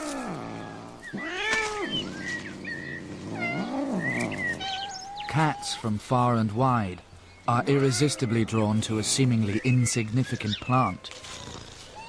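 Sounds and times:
cat yowling: 0:00.0 - 0:02.1, 0:03.3 - 0:05.8, 0:07.6 - 0:08.6.

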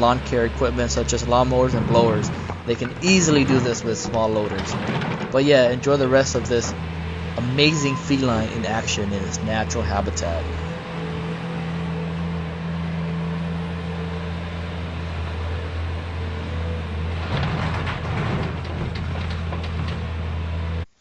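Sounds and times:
diesel engines running: 0:00.0 - 0:21.0
rubble clattering into truck bed: 0:00.9 - 0:07.4, 0:16.6 - 0:20.8.

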